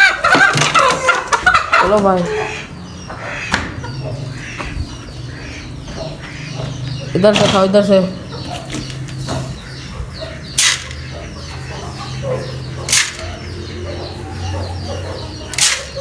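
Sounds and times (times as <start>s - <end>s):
chickens and pigeons chirping and clucking: 0.0s - 16.0s.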